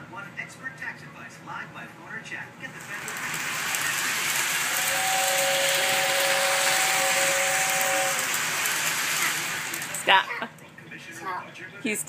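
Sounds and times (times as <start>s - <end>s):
toy train hissing: 2.8s - 10.4s
two-note train whistle: 4.6s - 9.3s.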